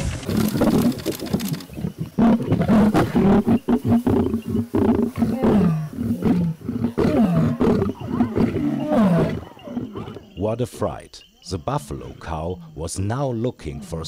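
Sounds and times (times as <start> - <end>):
lions snarling and growling: 0.0 - 10.5.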